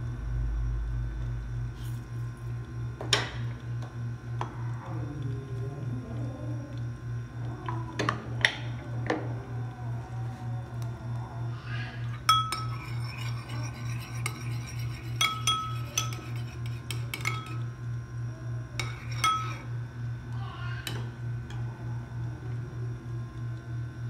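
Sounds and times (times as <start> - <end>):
pulsing low hum: 0.0 - 7.6
dishes and cutlery clinking: 12.2 - 17.7, 18.8 - 19.7.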